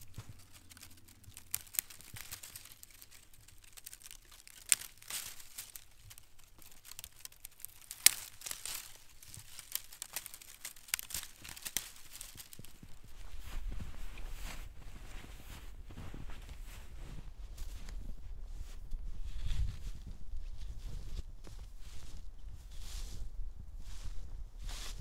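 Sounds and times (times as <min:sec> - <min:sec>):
dry twigs crackling and snapping: 0:00.0 - 0:13.2.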